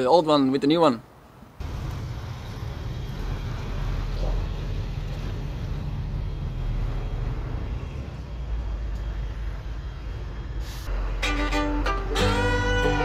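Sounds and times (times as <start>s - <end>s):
lorry diesel engine rumbling: 1.6s - 13.0s
short hiss: 10.6s - 10.9s.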